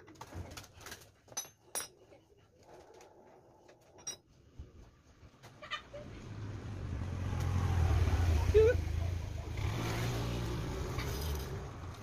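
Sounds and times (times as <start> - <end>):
motor vehicle rumble: 4.8 - 12.0.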